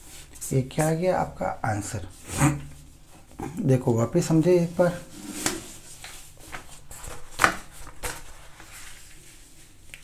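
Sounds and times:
paper and pen taps and rustles: 5.4s - 9.2s.

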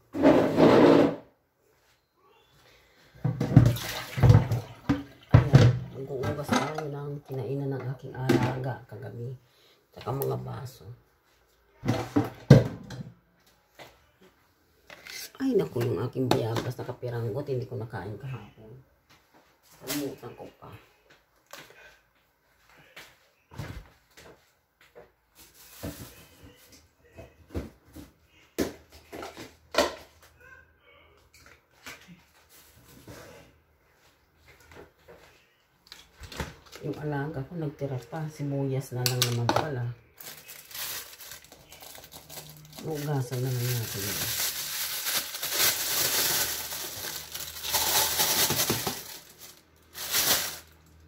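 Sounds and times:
plastic bags crinkling: 40.1s - 51.0s.

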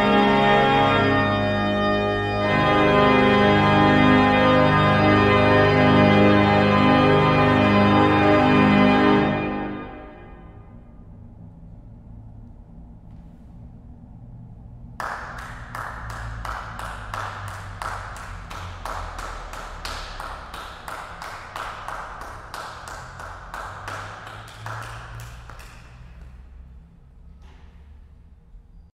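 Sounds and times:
low steady hum: 0.0s - 28.9s
people clapping with reverb: 15.0s - 26.8s.

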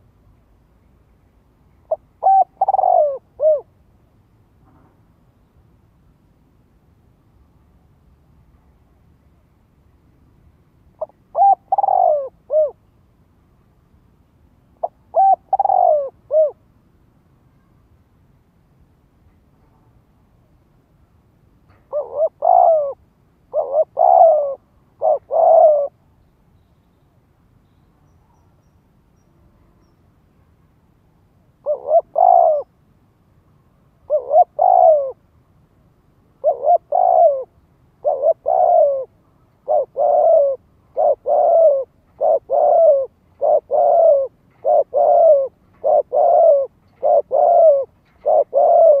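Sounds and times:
dove cooing: 1.9s - 3.7s, 11.0s - 12.8s, 14.8s - 16.6s, 21.9s - 26.0s, 31.6s - 32.7s, 34.0s - 35.2s, 36.4s - 49.0s.

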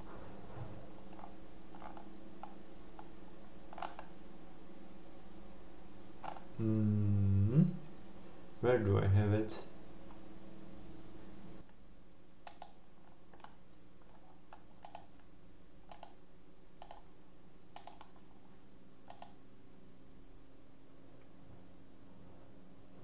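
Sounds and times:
faint steady hum: 0.0s - 23.0s
computer mouse clicks: 3.7s - 4.1s, 12.4s - 15.3s, 15.9s - 16.2s, 16.8s - 17.1s, 17.7s - 18.2s, 19.0s - 19.4s.

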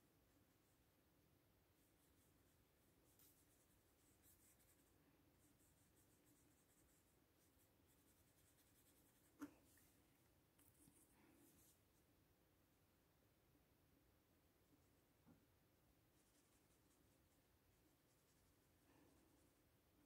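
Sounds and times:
brush scratching on paper: 1.7s - 10.0s, 10.6s - 12.0s, 16.1s - 19.8s.

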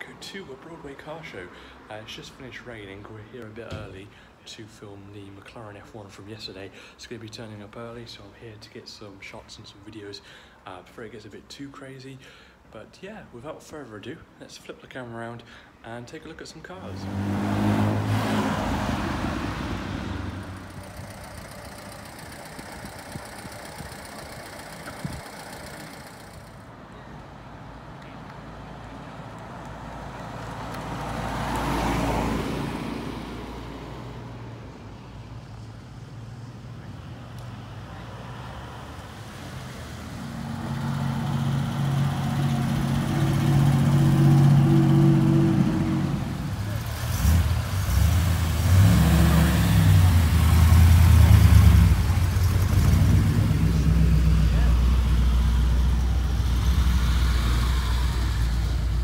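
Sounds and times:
sports cars driving past: 16.8s - 59.0s
loud engine low note: 40.9s - 59.0s.

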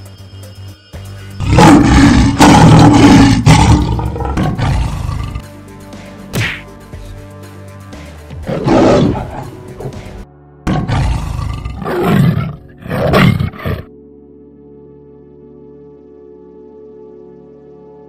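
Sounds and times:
background music: 0.0s - 18.0s
big cat roaring: 1.4s - 5.4s, 8.5s - 9.9s, 10.7s - 13.9s.

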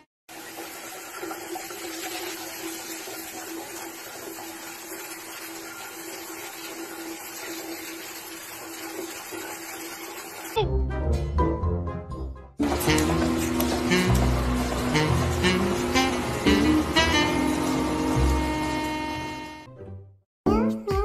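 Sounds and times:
shower spraying on tiled floor: 12.6s - 19.2s.

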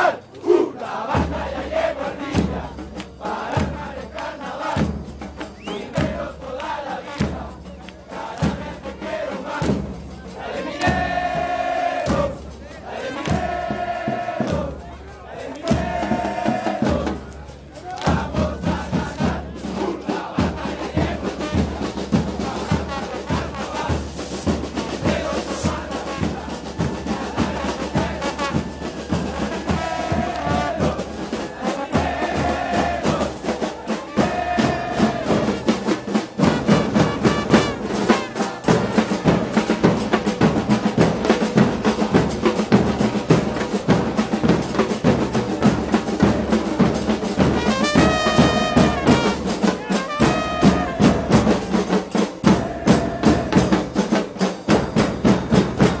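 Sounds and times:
crowd singing a chant: 0.0s - 56.0s
marching drums beating: 0.0s - 56.0s
trombone: 21.3s - 24.4s, 27.4s - 31.0s, 36.4s - 39.8s, 46.6s - 53.6s.

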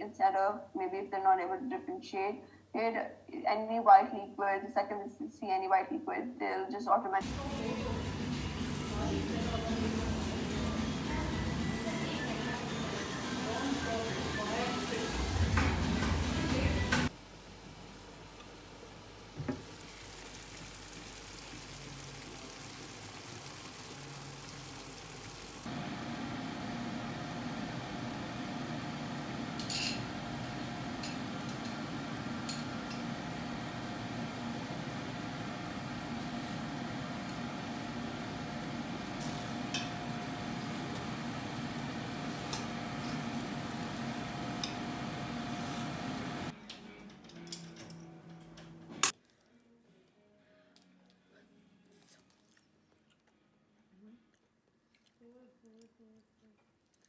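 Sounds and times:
food sizzling in a frying pan: 19.4s - 25.7s.

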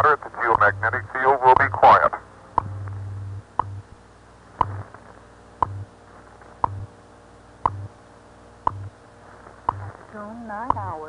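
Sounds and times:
faint shortwave hiss: 0.0s - 11.0s
time signal ticks: 1.5s - 1.8s, 3.5s - 3.8s, 4.6s - 4.8s, 5.6s - 5.9s, 6.6s - 6.9s, 7.6s - 7.9s, 8.6s - 8.9s, 10.6s - 11.0s.

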